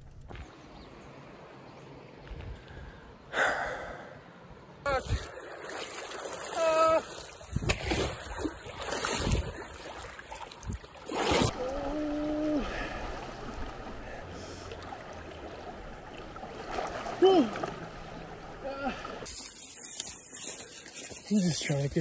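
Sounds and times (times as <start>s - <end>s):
flowing water rushing: 4.9s - 22.0s
person wading through water: 4.9s - 22.0s.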